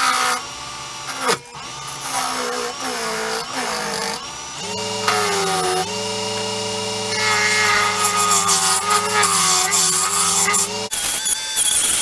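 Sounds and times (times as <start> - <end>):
wood lathe motor hum: 0.0 - 11.0
turning tool scraping wood: 4.8 - 10.9.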